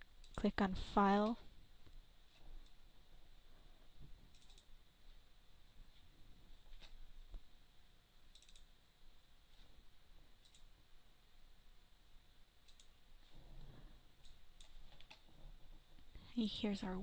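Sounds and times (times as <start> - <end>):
computer mouse clicks: 0.0 - 0.4, 4.3 - 4.7, 8.3 - 8.7, 10.4 - 10.7, 12.6 - 13.0, 13.6 - 15.2.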